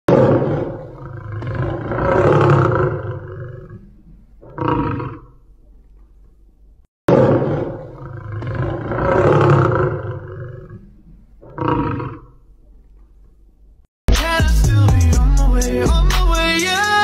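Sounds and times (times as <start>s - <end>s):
tiger roaring: 0.1s - 5.4s, 7.1s - 12.4s.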